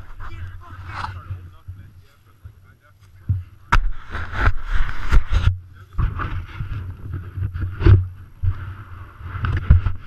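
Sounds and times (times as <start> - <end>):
knocks and bumps on camera: 3.2 - 8.7, 9.3 - 10.0.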